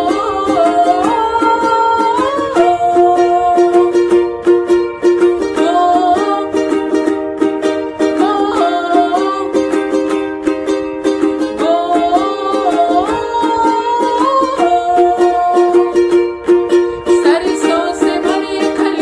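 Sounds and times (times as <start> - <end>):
boy singing: 0.0 - 4.2, 5.6 - 6.8, 8.1 - 9.8, 11.6 - 16.0, 17.0 - 19.0
ukulele strumming: 0.0 - 19.0.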